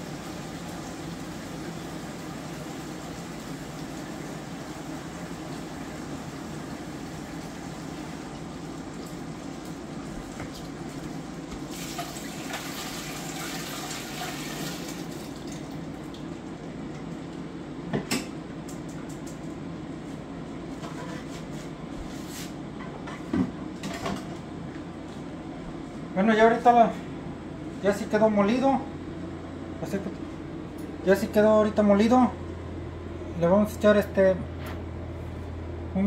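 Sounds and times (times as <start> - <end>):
liquid pouring and splashing: 11.7 - 16.3.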